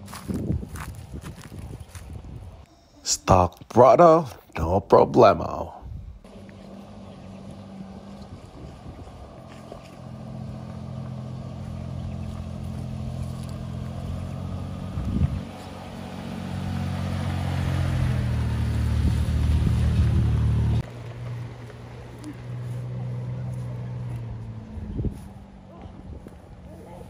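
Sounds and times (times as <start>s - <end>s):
vehicle engine under load: 6.2s - 27.0s.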